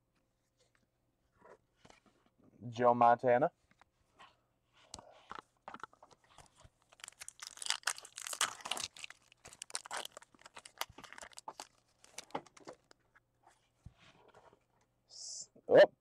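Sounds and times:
foil wrapper tearing and crinkling: 5.8s - 13.0s.

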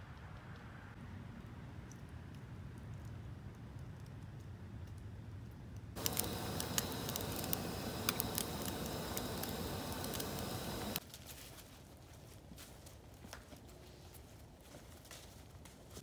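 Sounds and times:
bacon sizzling in a skillet: 6.0s - 11.0s.

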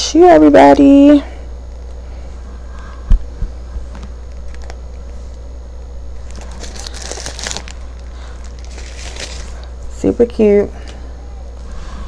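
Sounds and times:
steady low hum: 0.0s - 12.0s
tissue paper crinkling: 6.2s - 9.7s.

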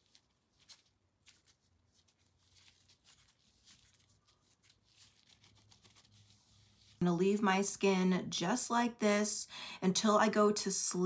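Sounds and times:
gloved hands rubbing skin: 0.0s - 7.0s.

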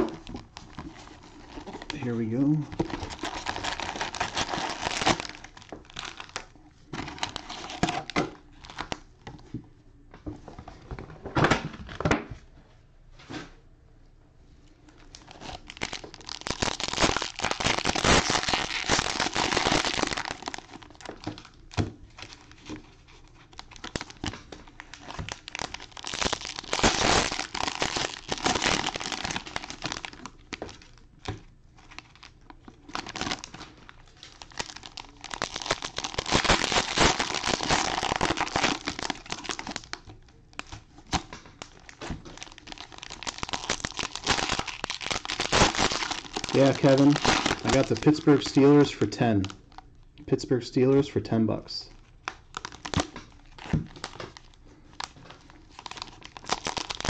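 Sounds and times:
cellophane crinkling and tearing: 0.0s - 9.1s, 14.9s - 50.0s, 51.9s - 57.0s.

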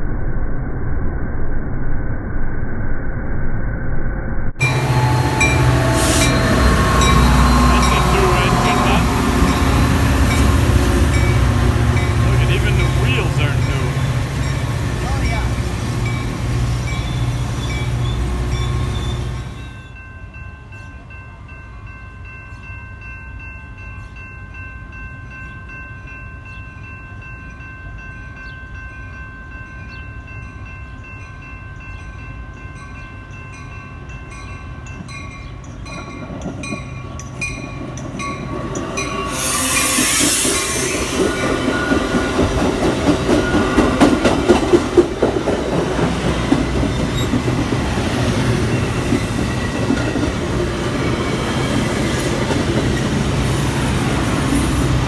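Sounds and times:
high tones: 4.6s - 22.7s
train passing: 4.6s - 55.0s
loud hiss: 39.3s - 41.4s.

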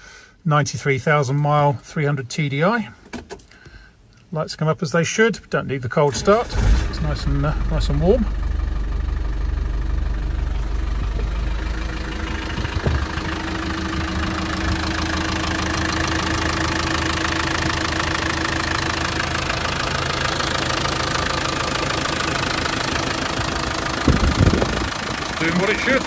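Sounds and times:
diesel engine idling: 6.1s - 26.0s
engine knock: 8.2s - 26.0s.

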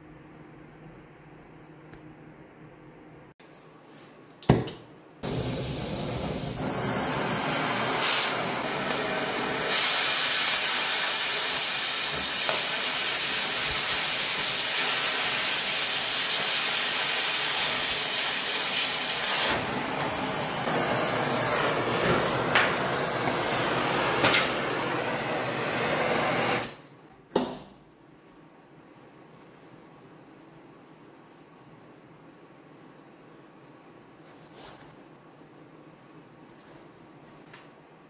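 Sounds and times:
cutting torch flame hissing: 5.2s - 26.8s.

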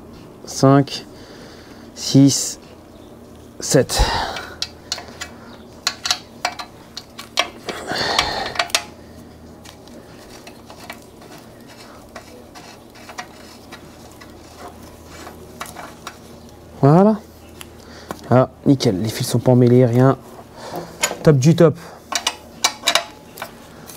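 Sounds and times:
light metallic clicks and clinks: 4.3s - 9.0s, 22.1s - 23.9s.

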